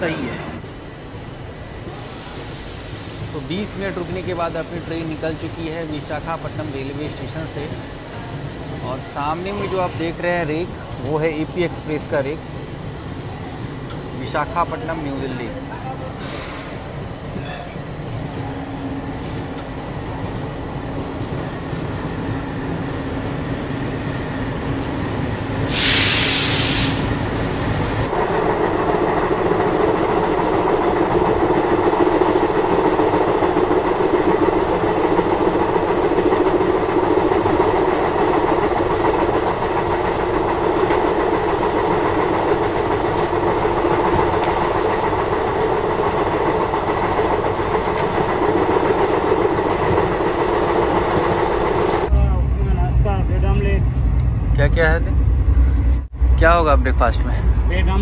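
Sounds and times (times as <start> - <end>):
train wheel and rail noise: 0.0 - 58.0
loud hiss: 1.8 - 16.9, 25.5 - 28.1.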